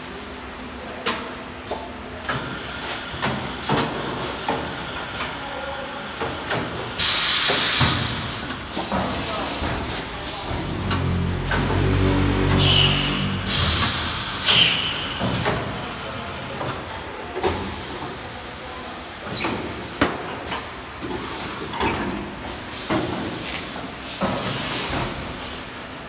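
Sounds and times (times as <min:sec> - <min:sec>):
compressed air hiss: 0:12.6 - 0:15.0.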